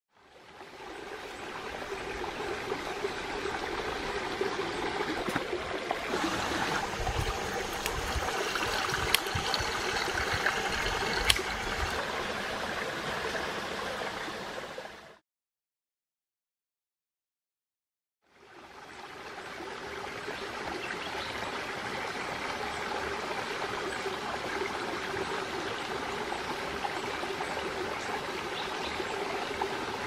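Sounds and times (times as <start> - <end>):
gurgling running water: 0.4 - 15.2.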